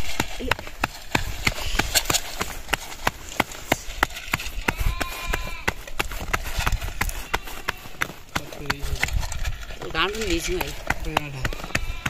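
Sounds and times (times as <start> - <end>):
sharp rhythmic knocks: 10.3 - 12.0.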